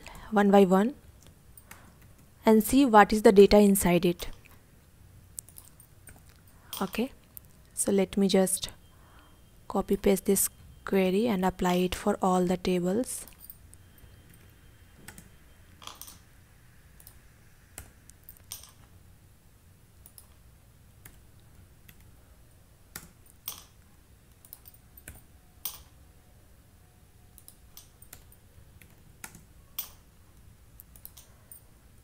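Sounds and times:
computer keyboard keystrokes: 27.4 - 30.0, 30.8 - 31.4.

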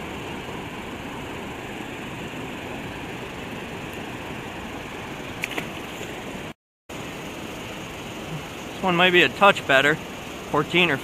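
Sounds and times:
fast river current rushing: 0.0 - 11.0
fish splashing into water: 5.2 - 6.5.

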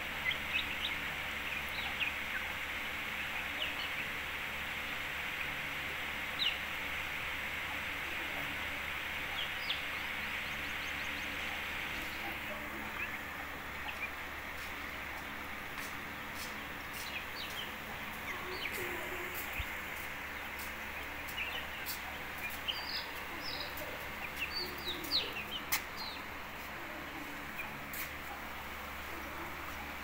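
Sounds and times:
chicks cheeping: 0.0 - 30.0
steady hiss: 0.0 - 30.0.

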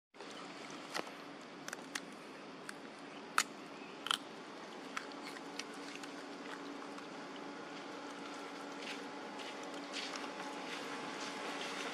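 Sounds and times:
faint steady hum: 0.2 - 11.9
monkey chewing clicks: 2.7 - 4.3, 4.9 - 7.1.

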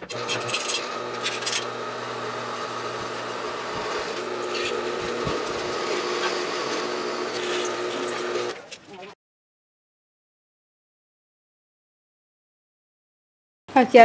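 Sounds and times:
drill bit scraping metal: 0.0 - 8.6
drill press running: 0.0 - 8.6.

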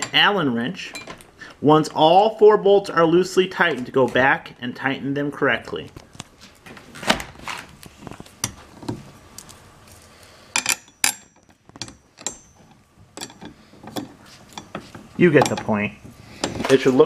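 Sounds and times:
metal bolts clinking on steel: 10.6 - 17.0.

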